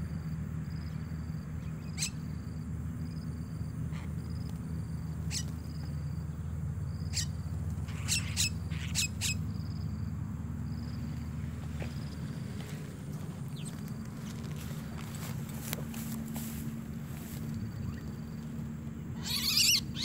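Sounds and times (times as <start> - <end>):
steady low hum: 0.0 - 20.0
mynas calling: 1.6 - 2.4, 3.8 - 6.1, 7.0 - 9.6, 11.0 - 20.0.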